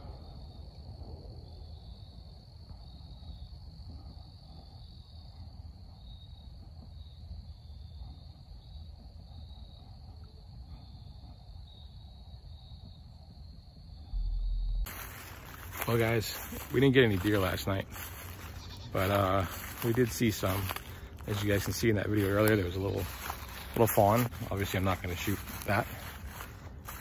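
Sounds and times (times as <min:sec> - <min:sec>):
insect high steady trill: 0:00.0 - 0:27.0
insect lower pulsing trill: 0:00.0 - 0:27.0
faint low rumble: 0:09.8 - 0:19.9.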